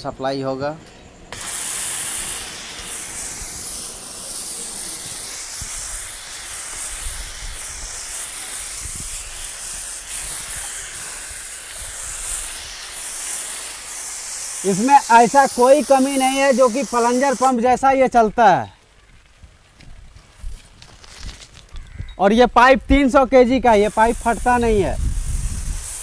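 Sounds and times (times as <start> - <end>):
pressure washer spray hiss: 1.3 - 18.4, 22.6 - 26.0.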